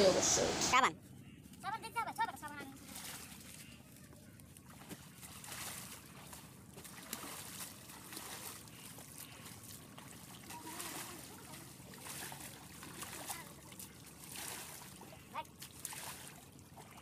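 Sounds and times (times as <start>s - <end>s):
river water trickling: 1.4s - 17.0s
water thrown splashing: 4.7s - 8.6s, 10.0s - 15.0s.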